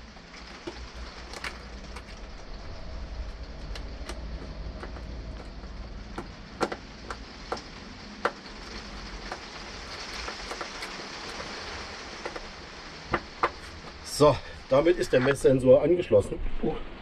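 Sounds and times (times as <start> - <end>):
rain on caravan roof: 0.0 - 17.0
clicks and taps on wiring terminals: 3.3 - 9.5, 12.2 - 12.5.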